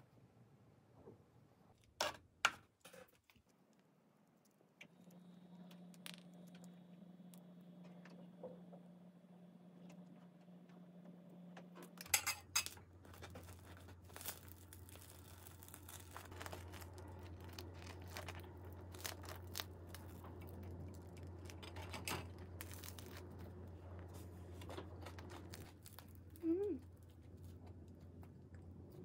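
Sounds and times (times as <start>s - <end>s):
bagel crust crackling: 3.2s - 7.5s, 12.5s - 29.0s
steady low hum: 3.6s - 29.0s.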